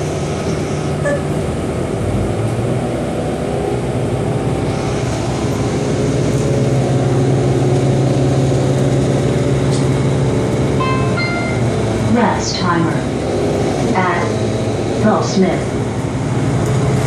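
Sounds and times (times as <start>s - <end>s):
bus engine and road hum: 0.0s - 17.0s.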